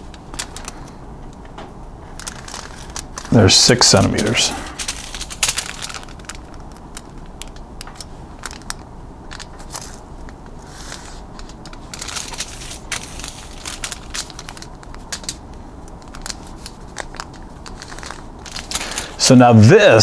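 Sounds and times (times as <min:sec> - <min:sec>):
aluminum foil crinkling: 0:00.0 - 0:01.0, 0:02.0 - 0:19.3.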